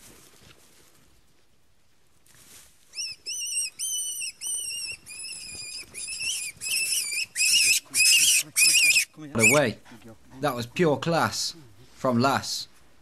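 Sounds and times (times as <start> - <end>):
rabbit squealing in distress: 3.0 - 9.7.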